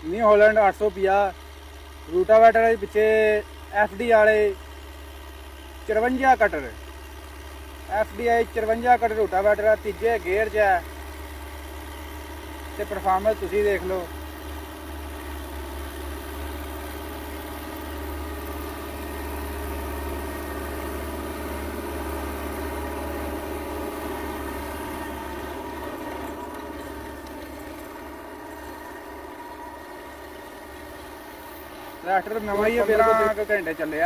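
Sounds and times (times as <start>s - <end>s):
tractor diesel engine droning: 0.0s - 34.0s
rotavator churning soil: 8.0s - 34.0s.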